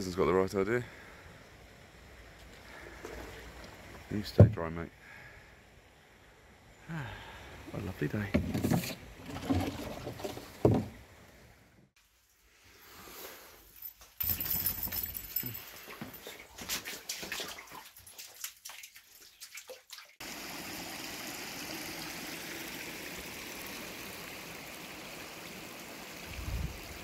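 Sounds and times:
floodwater sloshing and splashing: 8.4 - 11.0, 15.7 - 27.0
water rushing and trickling: 15.2 - 27.0.

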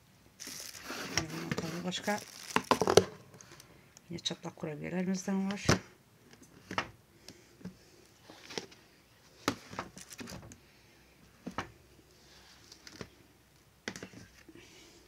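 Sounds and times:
soft rustling: 0.4 - 3.8
plastic tub clicks and knocks: 2.6 - 3.2.

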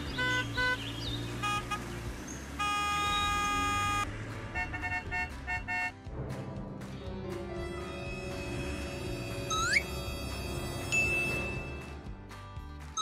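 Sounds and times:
horn honking: 0.0 - 6.1, 7.6 - 11.9.

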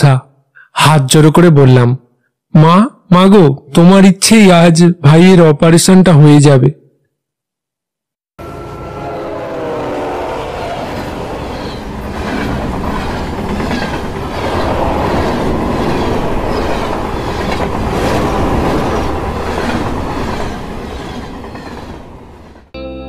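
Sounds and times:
train wheels clickety-clack: 11.8 - 22.7.

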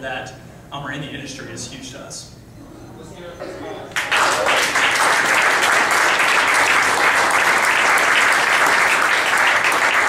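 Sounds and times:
audience applauding: 3.9 - 10.0.

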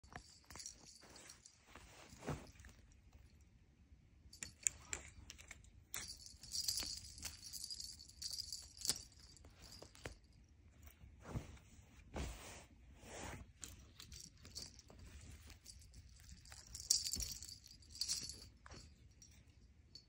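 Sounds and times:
soft knocks and rustles: 10.8 - 13.8.

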